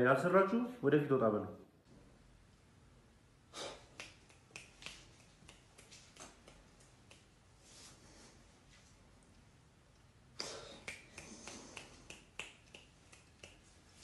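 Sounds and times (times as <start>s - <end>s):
soft hiss: 1.8s - 14.0s
finger snapping: 3.9s - 7.3s, 10.4s - 13.7s.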